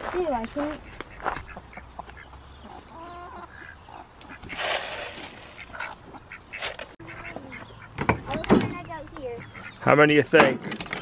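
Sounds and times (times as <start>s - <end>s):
chickens clucking: 0.6s - 10.0s
rustling: 4.2s - 7.0s.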